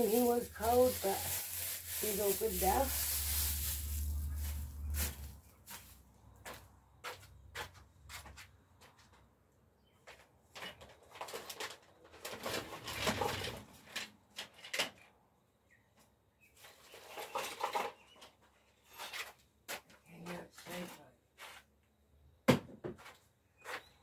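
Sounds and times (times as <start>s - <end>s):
rustling and scraping: 0.0s - 9.3s, 9.9s - 15.0s, 16.5s - 19.9s, 20.6s - 21.7s.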